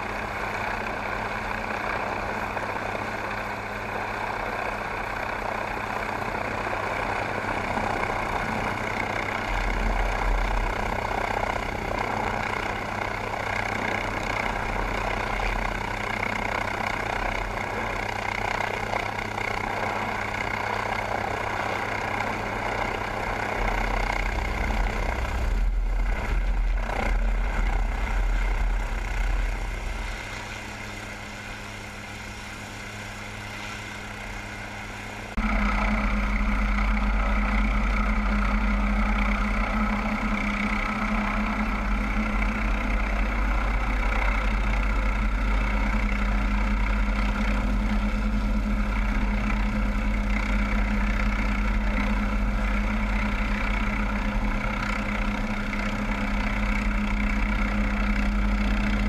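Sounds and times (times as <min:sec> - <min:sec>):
helicopter turbine and rotor noise: 0:00.0 - 0:59.0
deep low rumble: 0:23.4 - 0:30.4, 0:35.3 - 0:54.9.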